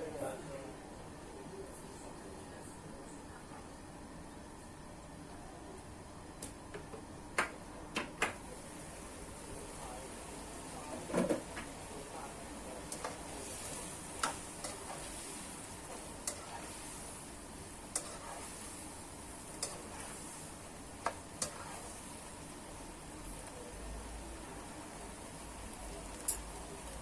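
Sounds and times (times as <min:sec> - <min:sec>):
celery sizzling in a wok: 0:08.4 - 0:27.0
spatula clicking against pan: 0:14.2 - 0:14.8, 0:17.9 - 0:18.2.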